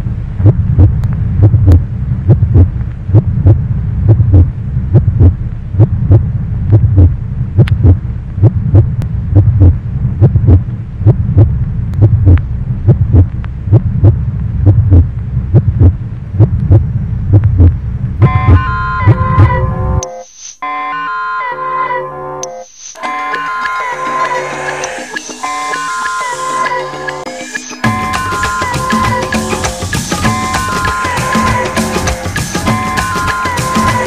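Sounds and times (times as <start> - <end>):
heartbeat thumps: 0.0 - 19.8
steady low hum: 0.0 - 20.1.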